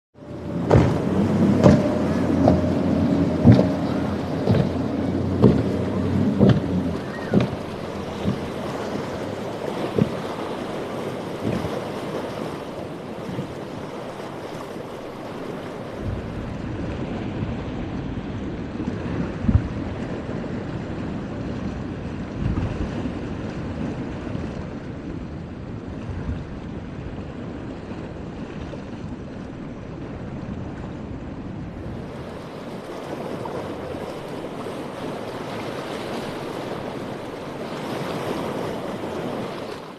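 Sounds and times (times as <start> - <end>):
breaking surf: 0.2 - 24.9, 31.2 - 39.9
outboard boat engines running: 0.2 - 39.9
wind buffeting microphone: 0.2 - 39.9
short thumps: 0.6 - 8.6.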